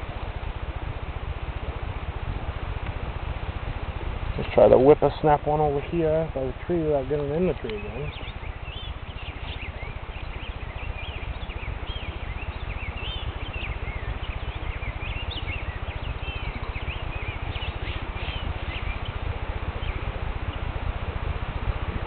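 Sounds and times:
low fluttering rumble: 0.0s - 22.0s
songbirds chirping: 2.7s - 22.0s.

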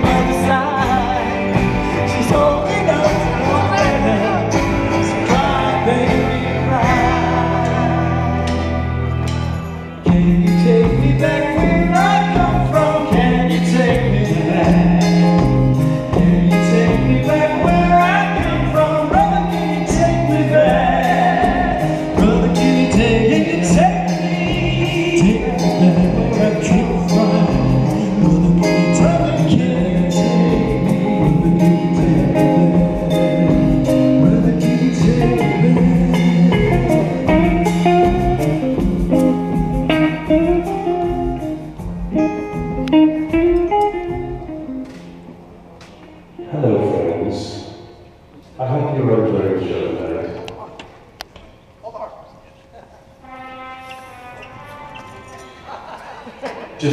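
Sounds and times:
drums steady beat: 0.0s - 9.5s, 10.1s - 45.0s
lead vocal singing: 0.0s - 38.9s
electric guitar: 0.0s - 48.6s, 53.2s - 56.9s
keyboards: 0.0s - 51.8s.

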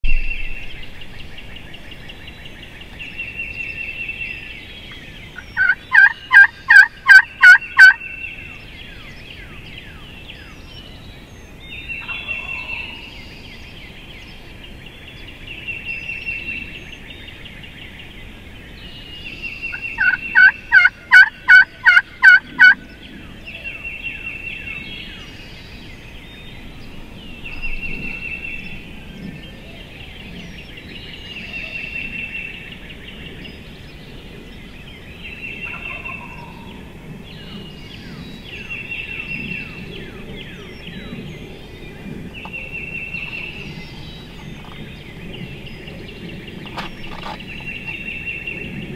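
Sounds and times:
turkey yelps: 5.6s - 8.0s, 20.0s - 22.8s.

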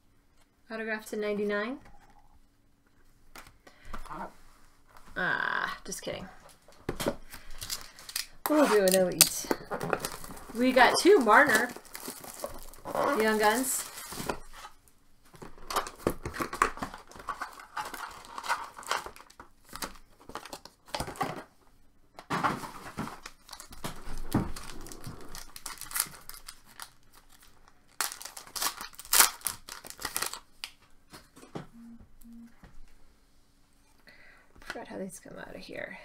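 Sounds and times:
card wrappers tearing and crinkling: 7.3s - 14.6s, 15.6s - 21.1s, 23.0s - 30.8s.

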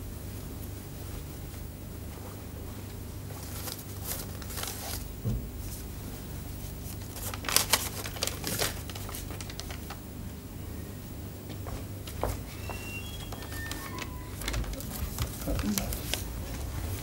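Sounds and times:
steady low hum: 0.0s - 17.0s
paper crinkling: 3.3s - 5.1s, 6.6s - 10.1s, 13.2s - 17.0s
soft thump: 5.2s - 5.6s.

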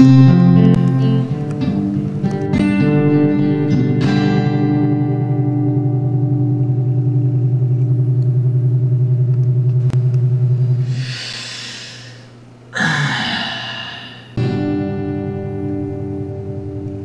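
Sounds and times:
pulsing guitar chord: 0.0s - 11.4s, 12.8s - 17.0s
breathy hiss into microphone: 10.8s - 14.4s
man's breathy vocal sound: 10.9s - 14.4s.

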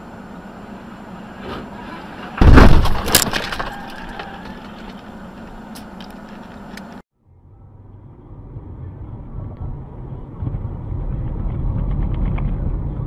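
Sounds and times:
steady low hum: 0.0s - 13.0s
car crash impact: 1.4s - 4.5s.

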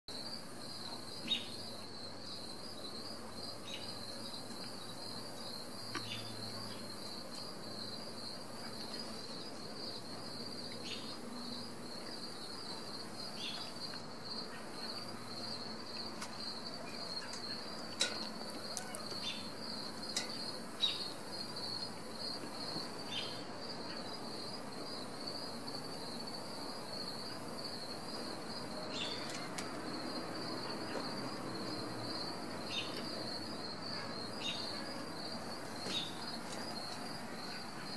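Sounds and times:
high-pitched insect chirping: 0.2s - 29.3s.

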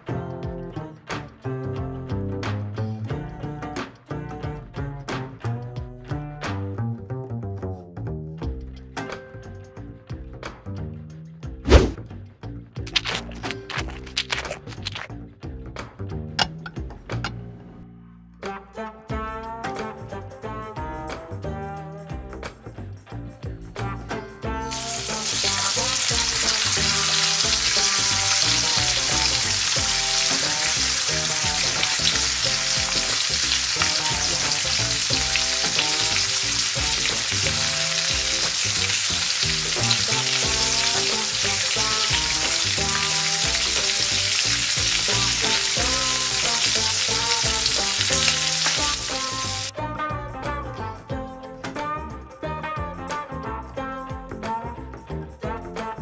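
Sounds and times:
steak sizzling in skillet: 24.7s - 49.7s.

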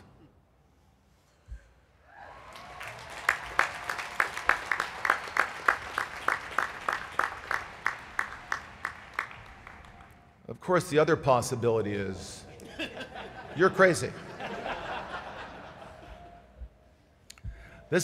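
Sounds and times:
crowd applauding: 2.2s - 10.4s
sharp evenly spaced claps: 2.5s - 10.3s.

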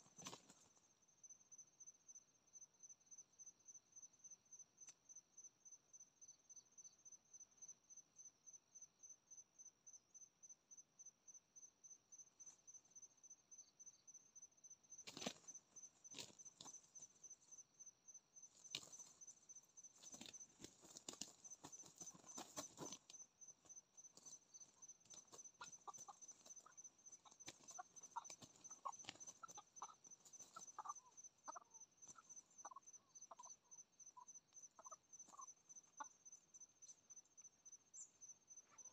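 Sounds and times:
insect chirping: 0.0s - 38.9s
fowl wings flapping: 15.1s - 15.5s, 20.0s - 23.0s, 27.2s - 30.8s
short clucking calls: 25.1s - 31.8s.

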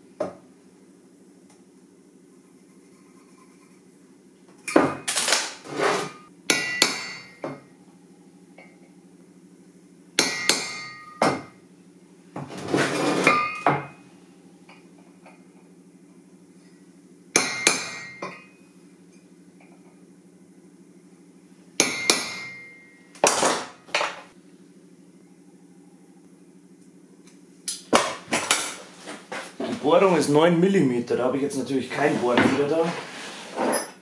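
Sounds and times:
hammer striking punch on steel: 6.5s - 7.5s, 10.2s - 11.5s, 21.8s - 23.5s
low hum: 24.4s - 27.8s.

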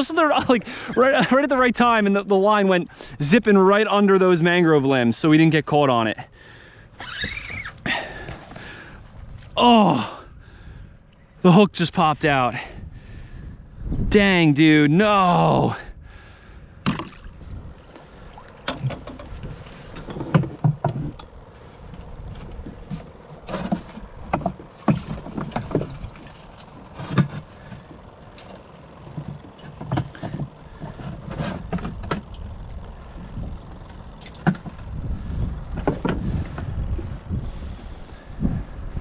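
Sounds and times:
low rumble: 15.7s - 39.0s
knocks and clunks on plastic: 18.6s - 21.3s, 22.0s - 26.3s, 29.1s - 32.4s, 34.2s - 34.9s, 35.7s - 36.4s.

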